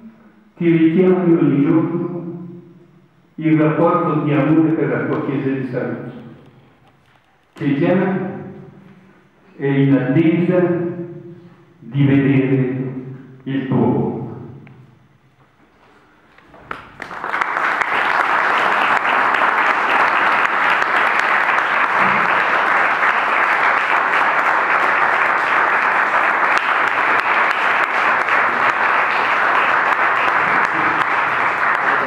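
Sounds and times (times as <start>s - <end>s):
audience applauding: 16.6s - 32.0s.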